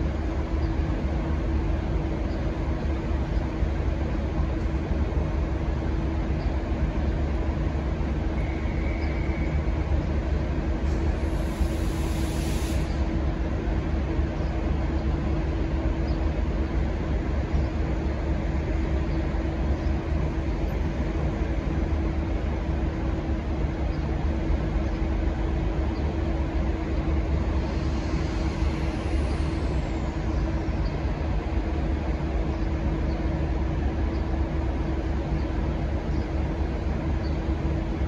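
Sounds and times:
diesel locomotive idling: 0.0s - 38.0s.

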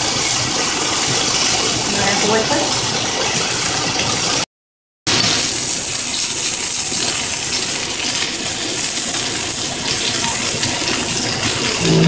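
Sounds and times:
steak frying hiss: 0.0s - 4.4s, 5.1s - 12.0s
masher scraping glass bowl: 11.8s - 12.0s.

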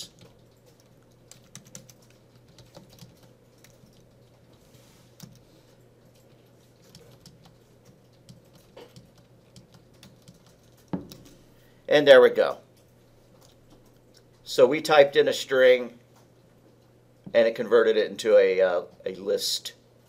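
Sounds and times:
computer keyboard typing: 0.0s - 4.6s, 5.2s - 11.4s.

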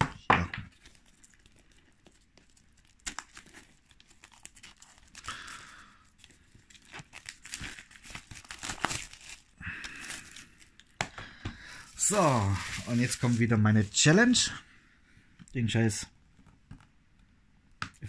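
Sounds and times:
plastic shrink-wrap crinkling: 0.7s - 10.9s, 11.7s - 14.4s.

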